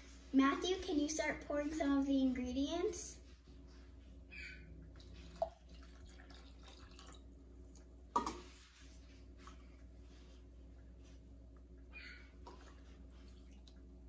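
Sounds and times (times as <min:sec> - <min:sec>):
liquid trickling and dripping: 0:04.9 - 0:08.5, 0:12.4 - 0:14.0.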